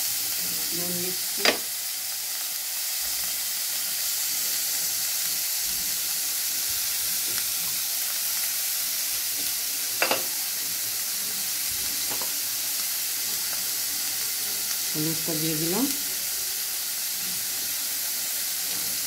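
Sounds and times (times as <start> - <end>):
onions sizzling in hot oil: 0.0 - 19.0.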